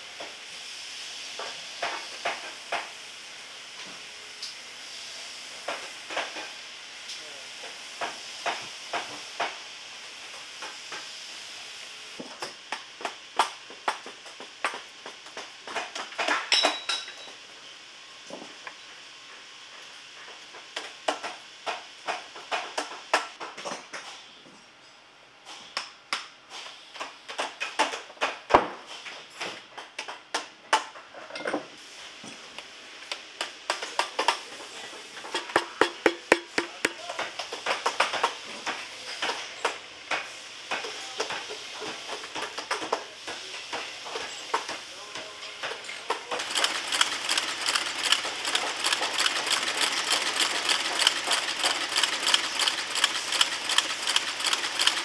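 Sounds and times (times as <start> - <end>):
hand tools tapping and knocking: 35.3 - 38.2
machine working boot sole: 35.4 - 37.1, 46.3 - 55.0.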